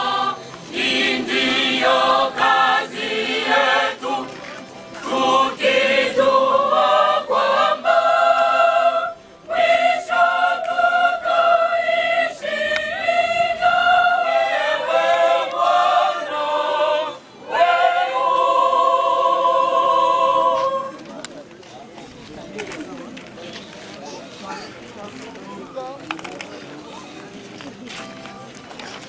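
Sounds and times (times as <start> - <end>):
choir singing: 0.0 - 21.2.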